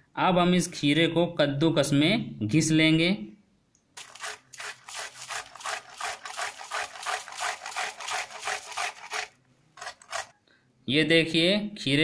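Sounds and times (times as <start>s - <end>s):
cucumber rasping on metal grater: 4.0s - 10.3s.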